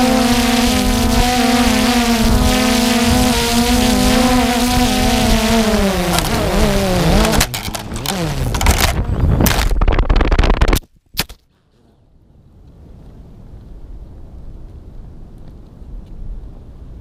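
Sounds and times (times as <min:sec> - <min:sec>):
drone propellers buzzing: 0:00.0 - 0:10.8
propellers clattering on branches: 0:06.0 - 0:10.9.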